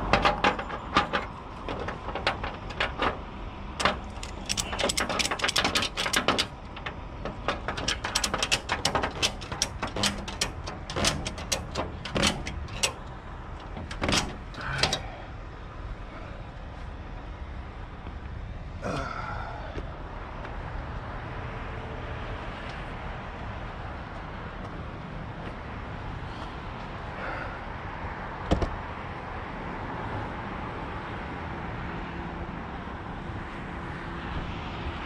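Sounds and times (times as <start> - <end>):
metal strap clicks and clanks: 0.0 - 15.2.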